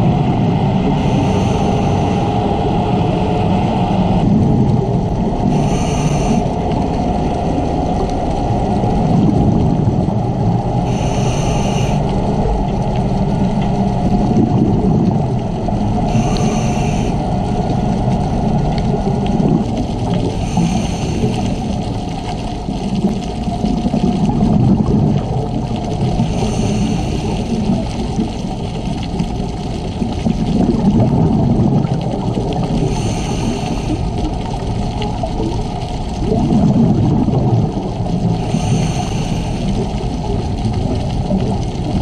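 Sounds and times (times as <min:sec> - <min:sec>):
exhaled bubbles rumbling: 0:00.0 - 0:42.0
regulator inhale hiss: 0:01.0 - 0:02.5, 0:05.4 - 0:06.6, 0:10.8 - 0:12.3, 0:16.1 - 0:17.3, 0:20.3 - 0:21.9, 0:26.1 - 0:27.8, 0:32.8 - 0:34.2, 0:38.4 - 0:40.0.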